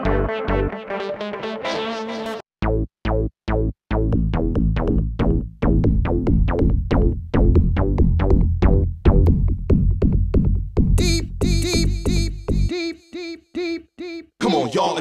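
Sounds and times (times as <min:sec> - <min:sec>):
fast electronic music with bass: 0:04.0 - 0:12.7.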